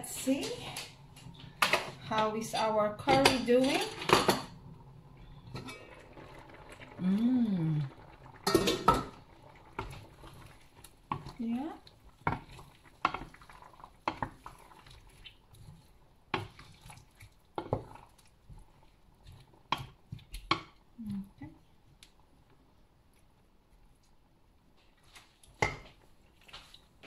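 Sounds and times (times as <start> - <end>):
stirring thick curry: 9.2 - 20.8.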